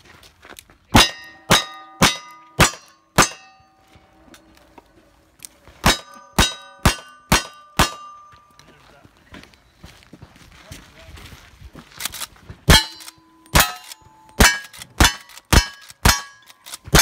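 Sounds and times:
steel target plate ringing: 1.0s - 4.5s, 5.8s - 8.6s, 12.7s - 17.0s
gunshots: 5.8s - 8.1s, 12.7s - 17.0s.

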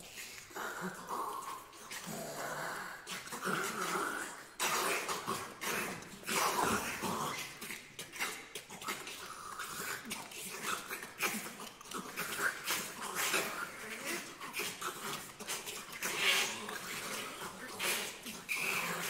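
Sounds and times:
hissing and rasping vocal sounds: 0.0s - 19.0s.

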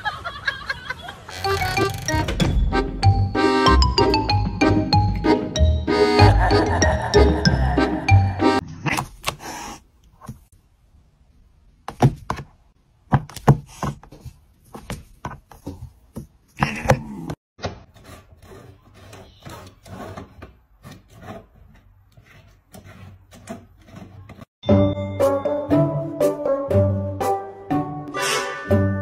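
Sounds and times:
scraping and rubbing: 17.8s - 24.5s.

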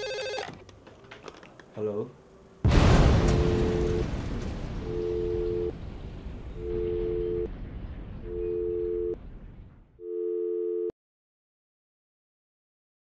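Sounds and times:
telephone busy tone beeping: 0.0s - 0.5s, 3.4s - 4.0s, 4.9s - 5.7s, 6.7s - 7.5s, 8.3s - 9.2s, 10.0s - 10.9s
explosion rumble and hiss: 2.6s - 10.0s.

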